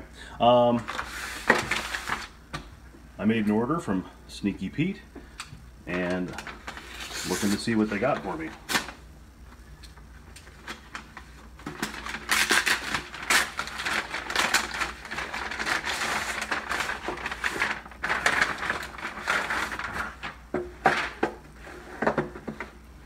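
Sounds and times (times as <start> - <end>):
plastic mailer crinkling: 0.8 - 2.4, 5.9 - 9.0, 10.4 - 22.4.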